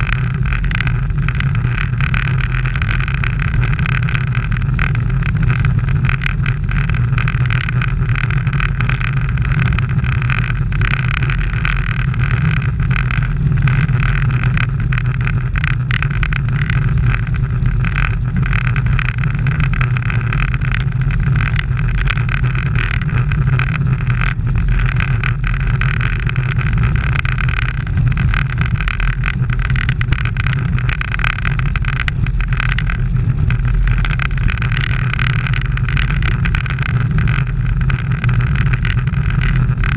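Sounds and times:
bicycle tyre noise: 0.0s - 39.9s
rumble of wind: 0.0s - 39.9s.

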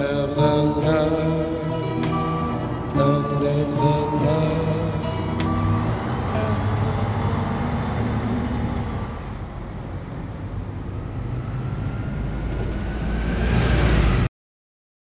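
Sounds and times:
bus engine rumble passing: 0.0s - 14.3s
faint rising whine: 3.9s - 14.3s.

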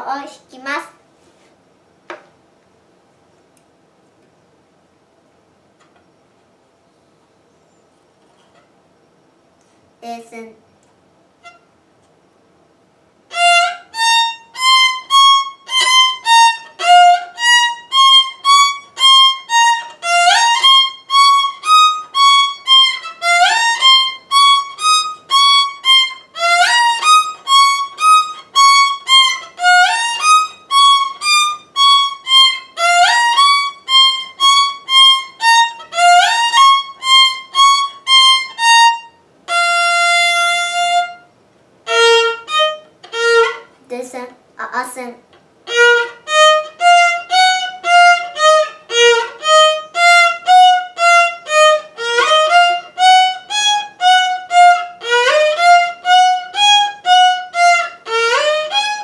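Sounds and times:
solo violin playing: 11.4s - 11.6s, 13.3s - 43.7s, 45.6s - 59.0s.

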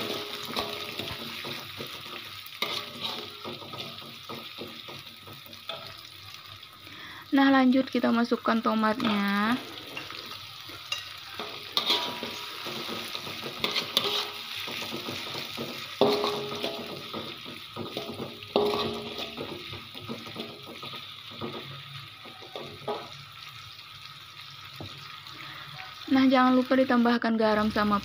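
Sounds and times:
metal spatula scraping a wok: 0.0s - 6.1s, 9.0s - 21.8s
oil sizzling in a wok: 0.0s - 28.0s.

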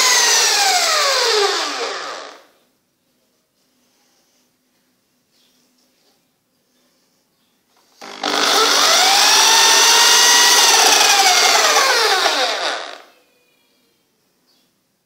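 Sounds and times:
electric drill motor whine: 0.0s - 2.5s, 8.0s - 13.1s.

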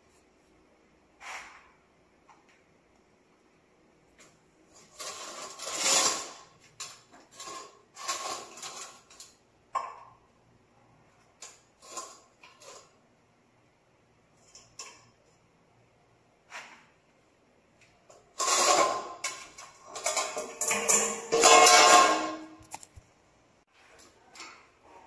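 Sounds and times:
metal bowl scraping on tiled floor: 4.7s - 9.4s, 11.4s - 13.0s, 18.1s - 22.8s.

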